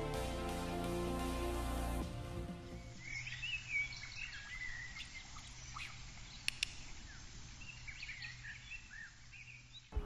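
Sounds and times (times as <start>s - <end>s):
small bird chirps and whistles: 3.0s - 6.5s
sharp clicks: 6.4s - 6.9s.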